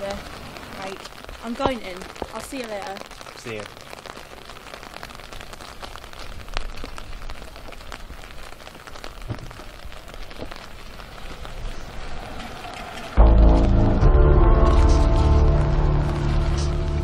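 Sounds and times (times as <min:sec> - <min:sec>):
steady rain: 0:00.0 - 0:17.0.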